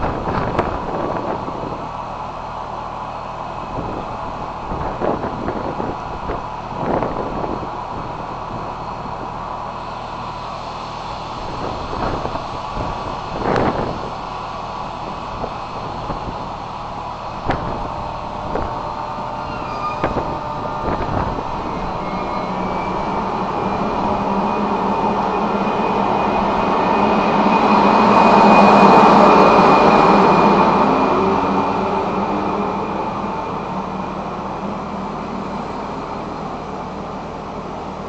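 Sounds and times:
electric locomotive pulling away: 0.0 - 38.0.

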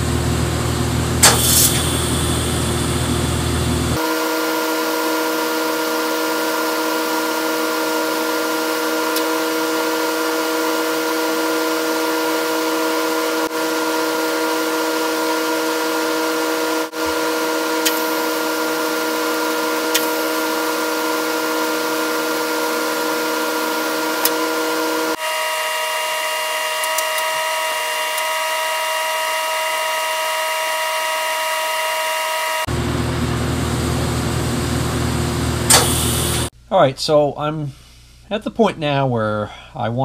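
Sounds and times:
welding arc hiss and buzz: 1.1 - 4.3, 15.7 - 31.1, 33.0 - 36.5.

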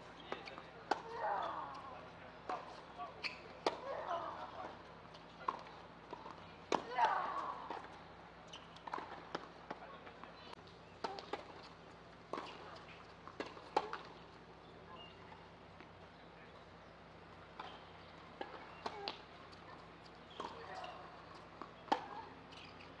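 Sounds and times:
tennis ball bouncing: 0.3 - 1.8, 5.4 - 9.5, 12.3 - 14.1, 21.6 - 22.8.

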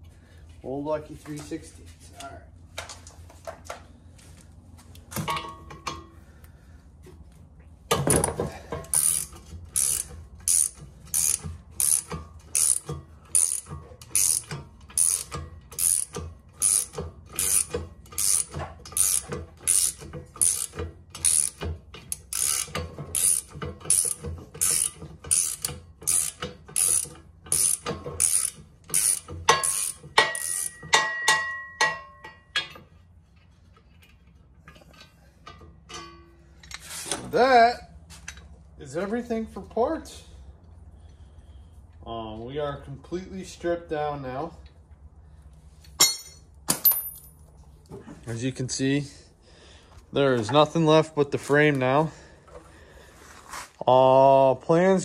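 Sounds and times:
socket ratchet clicking: 8.9 - 30.8.

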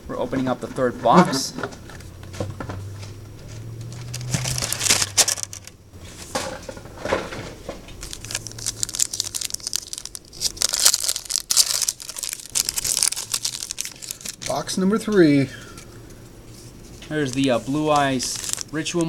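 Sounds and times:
plastic wrapping torn and crinkled: 3.9 - 5.8, 7.8 - 14.6, 17.0 - 19.0.

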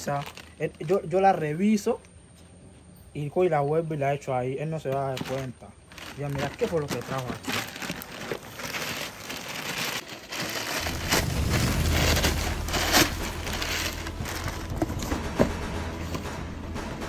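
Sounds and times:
plastic bag rustling and crinkling: 0.0 - 1.6, 4.8 - 15.5
low steady hum: 10.6 - 17.0.

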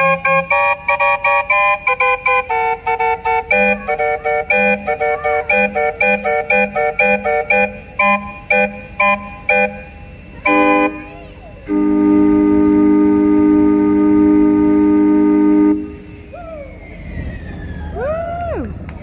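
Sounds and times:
train whistle calliope chords: 0.0 - 17.6.

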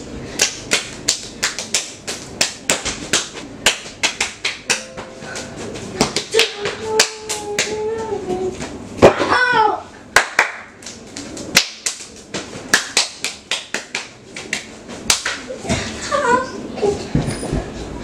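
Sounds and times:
hands clapping: 0.4 - 5.1, 10.2 - 15.5.

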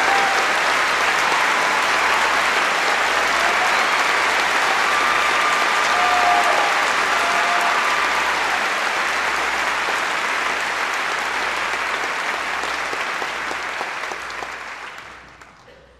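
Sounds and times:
audience applauding: 0.0 - 15.8.

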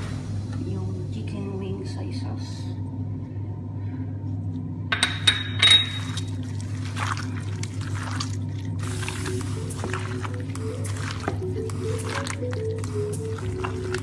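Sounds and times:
steady low hum: 0.0 - 14.0
wet squelching of mixed meat: 6.0 - 14.0.

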